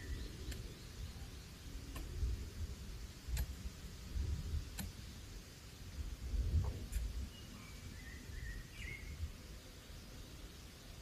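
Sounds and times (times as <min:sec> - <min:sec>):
faint sharp ticks: 0:00.4 - 0:00.7, 0:03.3 - 0:03.6, 0:04.7 - 0:05.0.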